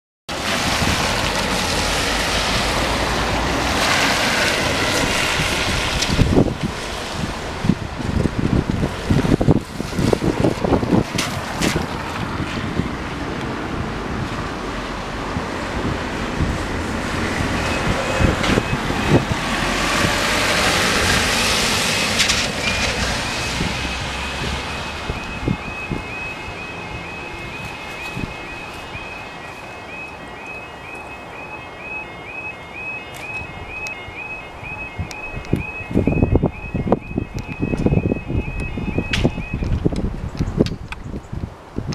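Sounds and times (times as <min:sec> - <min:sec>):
wind rumbling on microphone: 0:00.3 - 0:31.1, 0:32.8 - 0:41.9
van passing on wet road: 0:00.3 - 0:36.8
level crossing alarm yodelling: 0:21.9 - 0:39.6.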